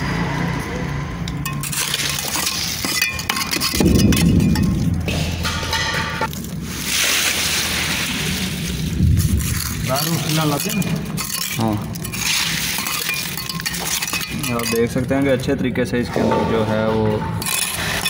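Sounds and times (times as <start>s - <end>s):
concrete scraping: 1.2s - 18.0s
tool clinking against metal pan: 1.3s - 6.3s, 9.9s - 15.4s
wet concrete slopping: 1.5s - 15.5s.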